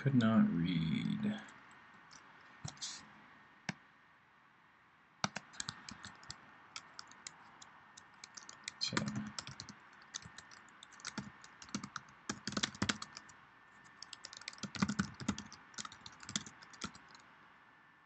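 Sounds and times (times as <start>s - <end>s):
typing on a computer keyboard: 5.2s - 17.3s.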